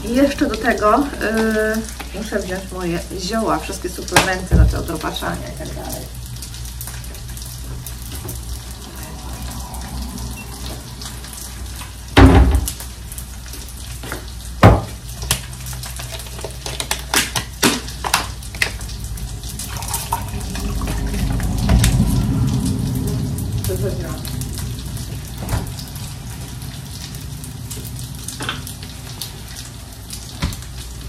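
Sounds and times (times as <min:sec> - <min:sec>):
low hum: 0:18.1 - 0:30.3.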